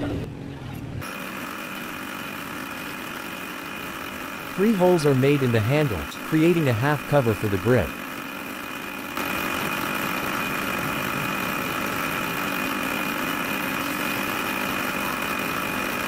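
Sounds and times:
drill press cutting steel: 1.0s - 16.0s.

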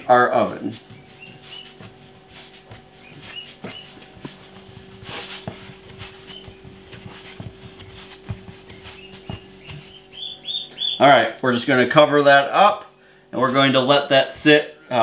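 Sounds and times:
dough kneading thumps: 0.0s - 11.2s
steady low hum: 0.0s - 15.0s.

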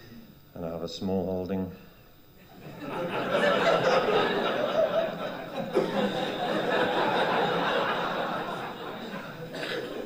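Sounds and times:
audience laughing: 2.5s - 10.0s.

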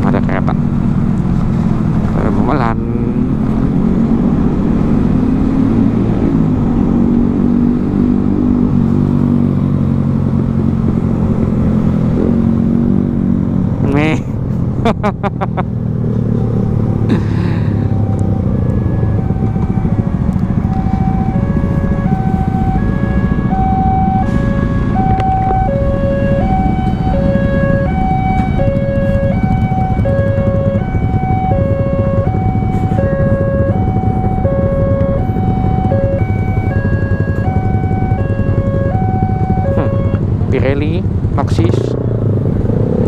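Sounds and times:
motorcycle engine: 0.0s - 43.0s
wind noise: 17.6s - 43.0s
two-tone electronic warning signal: 25.0s - 40.2s.

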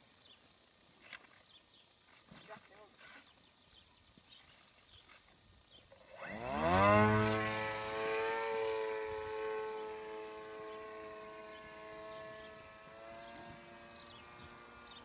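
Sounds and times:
model plane electric motor whine: 5.9s - 15.0s.

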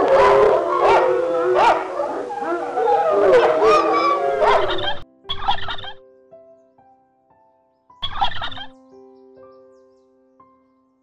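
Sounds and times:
hyena calls: 0.0s - 5.9s
short rattling animal calls: 4.6s - 6.0s.

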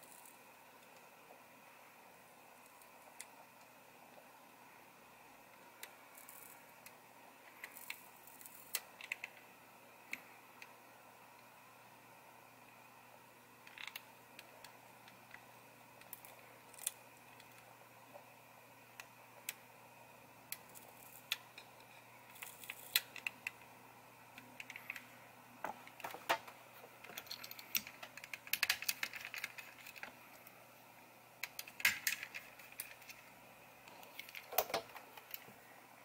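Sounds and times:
plastic clicks and rattles: 24.5s - 30.2s, 31.4s - 33.3s, 33.9s - 35.5s.

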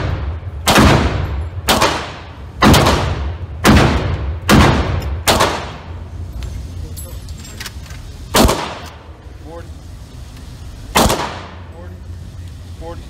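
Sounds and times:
pistol shots echoing indoors: 0.0s - 6.0s, 8.3s - 9.0s, 10.9s - 11.6s.

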